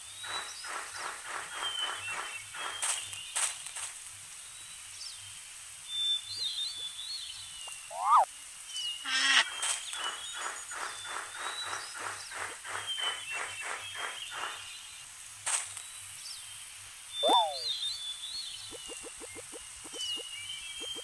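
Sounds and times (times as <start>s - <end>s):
bird chirps and whistles: 7.9s - 8.3s, 17.1s - 18.0s, 18.7s - 21.0s
short rising bird call: 7.9s - 8.3s, 17.2s - 17.7s
trilled bird call: 7.9s - 8.3s, 17.2s - 17.9s, 18.6s - 21.0s
rapid rhythmic pulsing: 18.6s - 21.0s.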